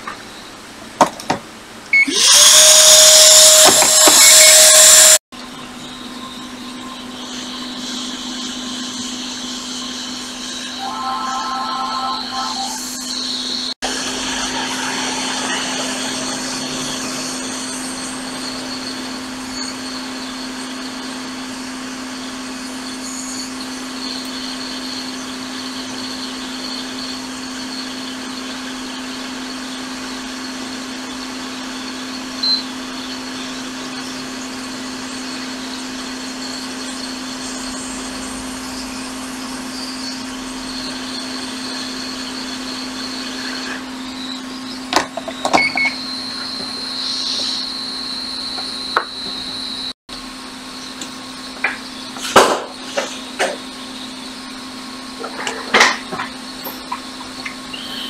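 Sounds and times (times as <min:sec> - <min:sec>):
hot air station blowing: 0:02.0 - 0:05.2, 0:07.2 - 0:20.1.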